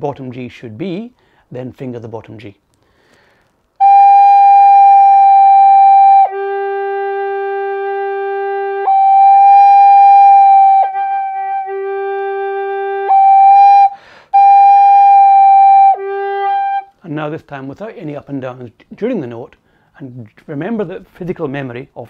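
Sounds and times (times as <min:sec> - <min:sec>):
quick breath: 0:01.2 - 0:01.5, 0:02.8 - 0:03.7, 0:13.9 - 0:14.4, 0:19.6 - 0:20.0
alto recorder long notes: 0:03.8 - 0:17.0.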